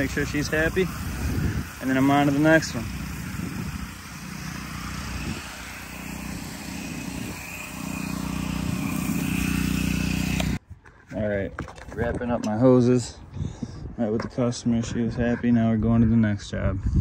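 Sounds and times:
pressure washer hum: 0:00.0 - 0:10.6
water spray hissing on asphalt: 0:00.0 - 0:10.6.

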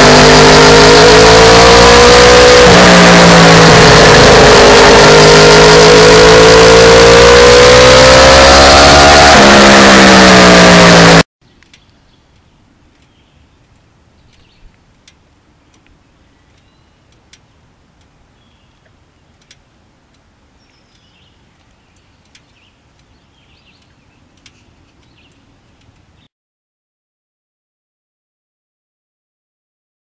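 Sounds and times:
motorcycle engine burst: 0:00.0 - 0:11.2.

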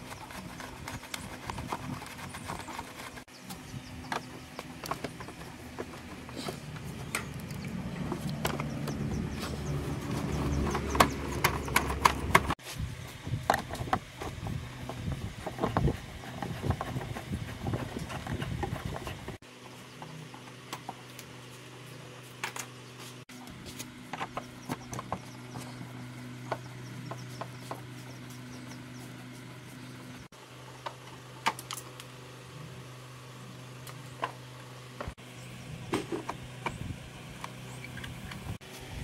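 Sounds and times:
steady low hum: 0:00.0 - 0:39.0
tools and metal parts clattering: 0:04.1 - 0:12.6.

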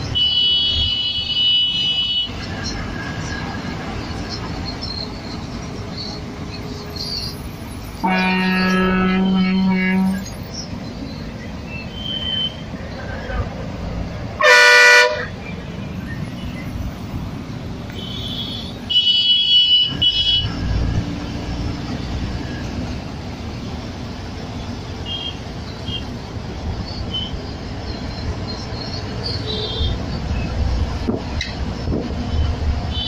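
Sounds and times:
bus engine and road rumble: 0:00.0 - 0:33.0
vehicle horns honking: 0:00.1 - 0:02.4, 0:08.0 - 0:10.3, 0:14.4 - 0:15.4, 0:17.9 - 0:20.6, 0:25.0 - 0:26.1, 0:29.2 - 0:30.1.

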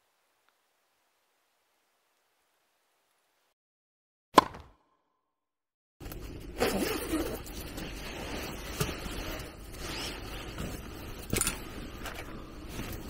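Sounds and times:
fabric rustling: 0:06.4 - 0:13.0.

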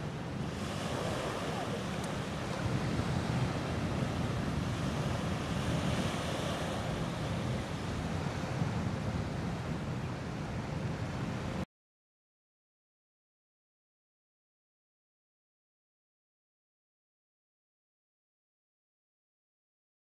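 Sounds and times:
river water washing against shore: 0:00.0 - 0:09.6
wind buffeting microphone: 0:00.0 - 0:11.6.

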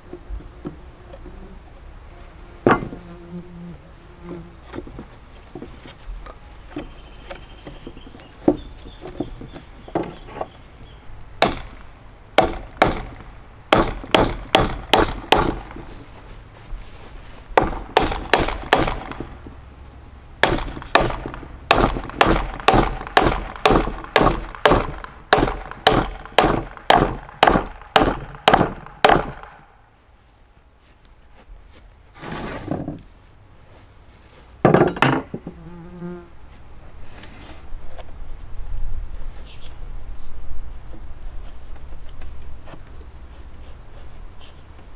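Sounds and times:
hammer striking chisel into wood: 0:11.4 - 0:15.9, 0:17.6 - 0:19.4, 0:20.4 - 0:29.6.

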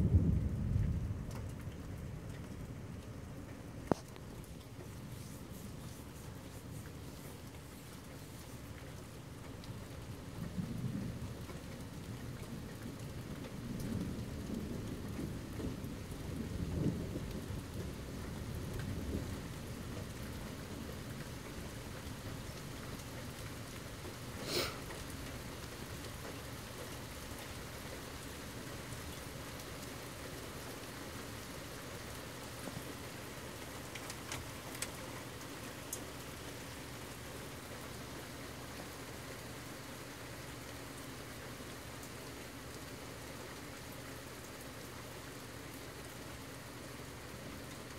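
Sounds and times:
low thunder rumbling: 0:00.0 - 0:02.9, 0:10.0 - 0:21.2
steady rain: 0:00.0 - 0:47.9
faint ticks: 0:00.8 - 0:15.3, 0:33.6 - 0:36.1.

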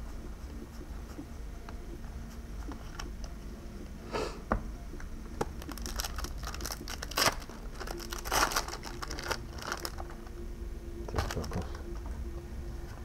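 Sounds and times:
foil wrapper crinkling: 0:05.6 - 0:10.2, 0:11.1 - 0:11.9.

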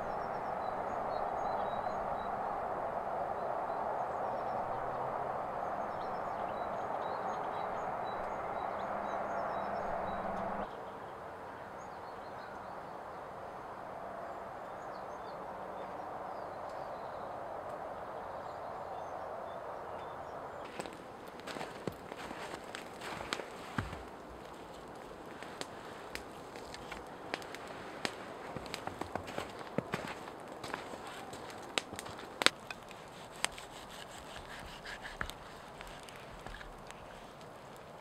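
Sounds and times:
steady rushing noise: 0:00.0 - 0:10.7
birds chirping faintly: 0:00.0 - 0:38.0.

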